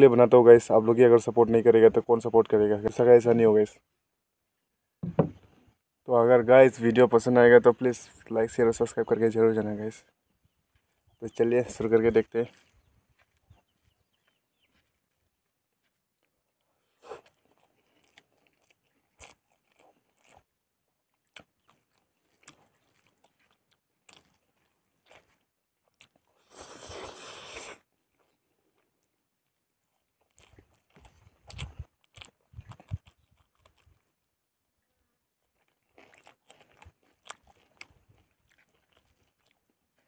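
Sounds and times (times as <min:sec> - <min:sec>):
crunching and chewing: 0:08.8 - 0:40.0.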